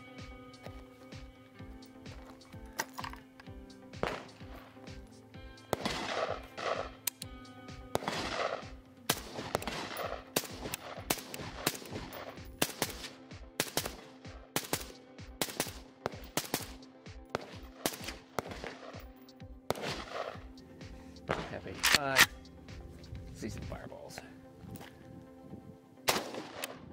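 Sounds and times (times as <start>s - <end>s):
background music: 0.0s - 26.9s
suppressed rifle firing single shots: 2.1s - 22.5s, 26.0s - 26.9s.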